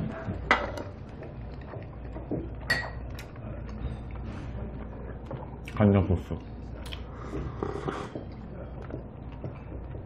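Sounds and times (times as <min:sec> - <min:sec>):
ceramic tableware clinking: 0:02.7 - 0:03.0.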